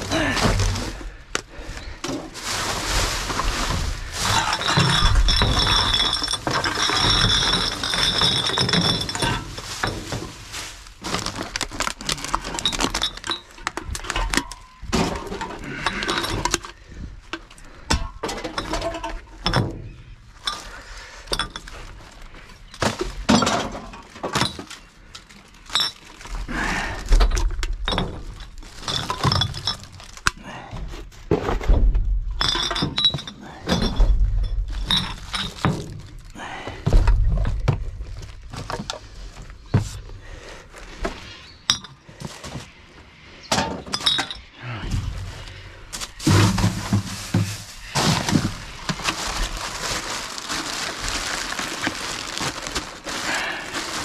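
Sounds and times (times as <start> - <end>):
glass bottles clinking: 1.8 - 16.8, 17.4 - 24.9, 25.6 - 26.3, 27.2 - 30.4, 32.4 - 36.4, 41.6 - 42.6, 43.5 - 45.0.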